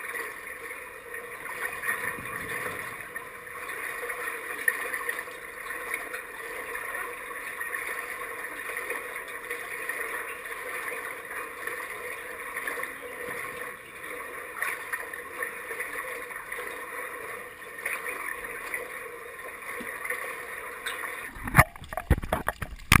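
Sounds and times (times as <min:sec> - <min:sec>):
water lapping and sloshing: 0:00.0 - 0:23.0.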